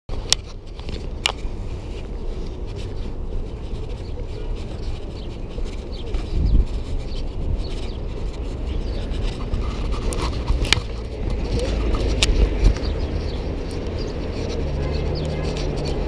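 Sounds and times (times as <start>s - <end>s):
low traffic rumble: 0.1s - 16.0s.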